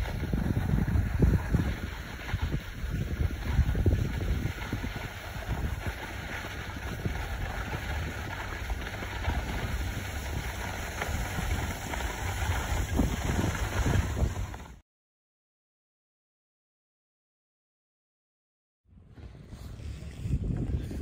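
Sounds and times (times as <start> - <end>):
skis sliding over snow: 0.0 - 14.8
wind buffeting microphone: 0.0 - 14.8, 18.9 - 21.0.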